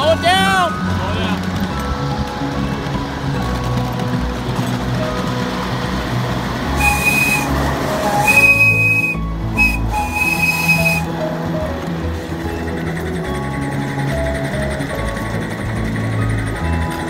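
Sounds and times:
steam locomotive whistle blasts: 6.8s - 11.1s.

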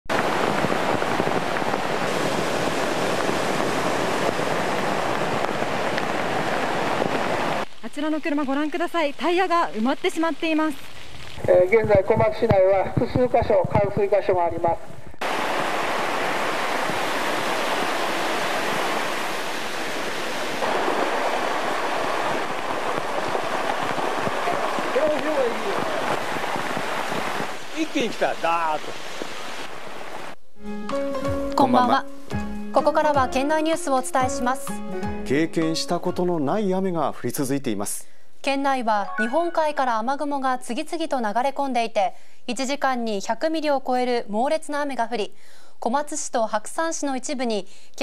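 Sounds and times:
floodwater rushing and churning: 0.1s - 7.7s, 15.2s - 30.4s.

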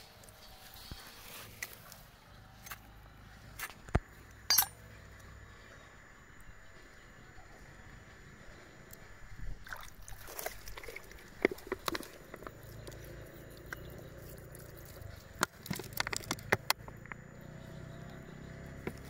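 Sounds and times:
oyster shell clicking and scraping: 15.3s - 17.2s.

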